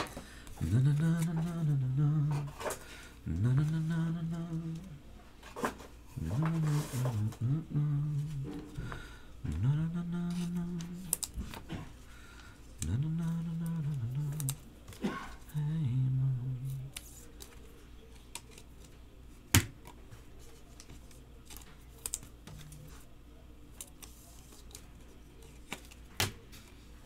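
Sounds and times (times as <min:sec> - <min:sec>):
man humming a low tune: 0:00.6 - 0:05.0, 0:06.2 - 0:08.8, 0:09.4 - 0:11.3, 0:12.8 - 0:14.7, 0:15.4 - 0:17.0
trading cards clicking: 0:10.2 - 0:11.7, 0:12.8 - 0:14.6.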